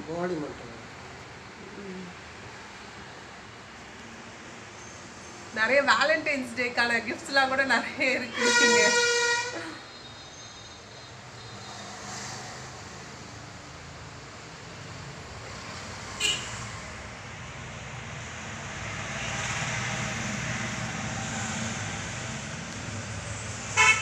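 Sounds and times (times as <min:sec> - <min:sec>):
passing vehicles rumbling: 0:10.8 - 0:24.0.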